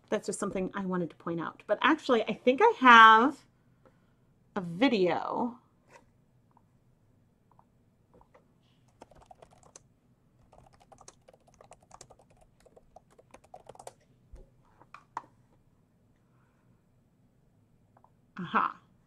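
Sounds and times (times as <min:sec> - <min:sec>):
keyboard typing: 0:08.2 - 0:09.8, 0:10.4 - 0:14.0.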